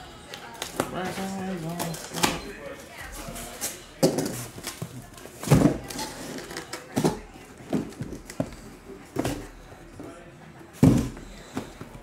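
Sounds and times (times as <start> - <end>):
boxes knocking on a table: 10.8 - 12.0.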